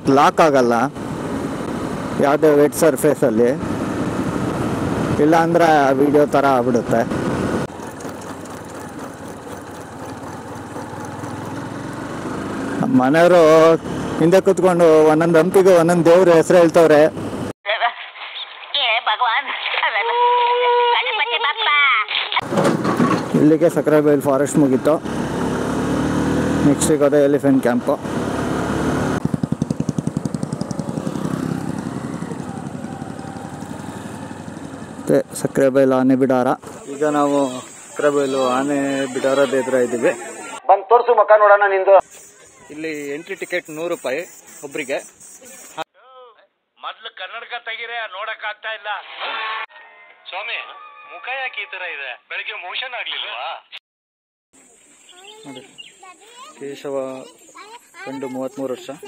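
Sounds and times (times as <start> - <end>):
road noise: 0.0 - 17.6, 22.1 - 45.9, 54.6 - 59.0
motorcycle engine running: 0.9 - 16.0, 24.3 - 35.9.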